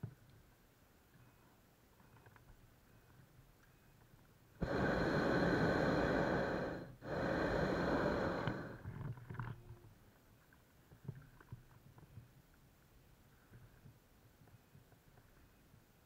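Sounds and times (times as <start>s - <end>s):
propane burner blasts: 4.6s - 8.8s.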